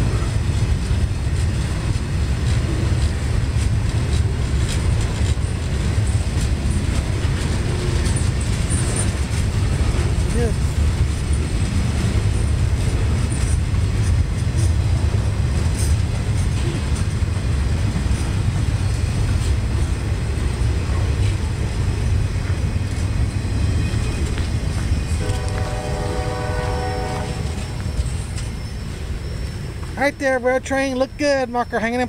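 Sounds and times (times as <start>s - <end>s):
train cars rumbling past: 0.0s - 32.0s
train horn: 25.2s - 27.9s.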